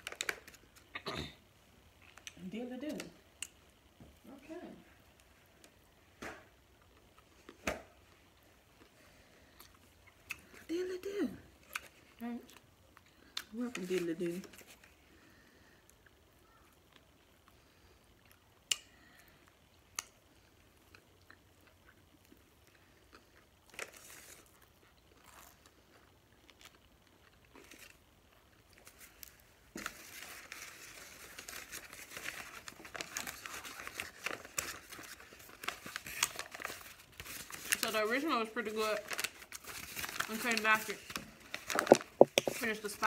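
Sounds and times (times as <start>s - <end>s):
paper wrapper crinkling: 0.0s - 0.9s, 28.7s - 43.0s.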